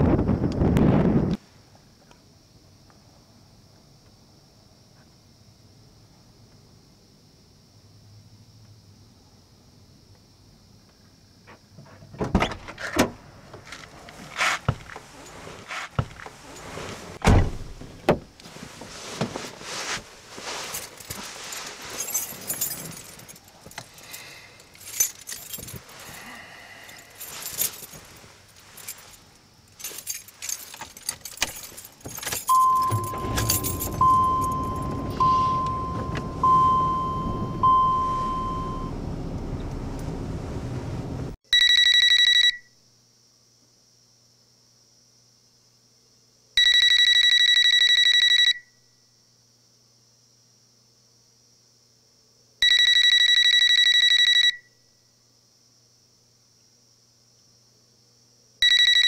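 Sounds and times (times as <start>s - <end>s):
clicks and rustles: 17.8s - 26.3s, 27.0s - 36.3s
keys jangling: 20.8s - 26.2s, 26.9s - 35.2s
car warning chime: 32.5s - 40.2s
car engine idling: 32.5s - 41.4s.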